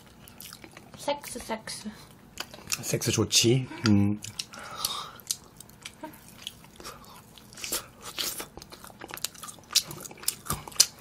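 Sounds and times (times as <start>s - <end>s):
close chewing mouth smacks: 3.8s - 11.0s.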